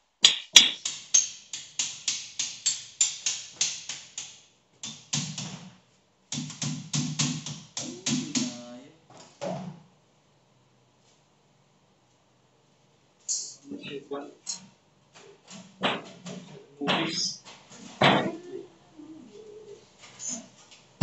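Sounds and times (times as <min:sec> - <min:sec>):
rapid knocking on sheet-metal duct: 0:00.4 - 0:08.6, 0:15.4 - 0:16.6.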